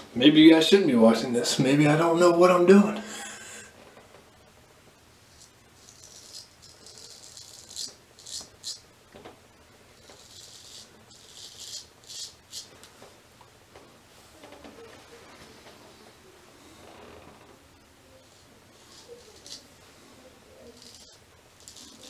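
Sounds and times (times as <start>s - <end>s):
razor scraping stubble: 5.3s - 8.8s, 10.0s - 12.8s, 18.2s - 19.7s, 20.6s - 22.0s.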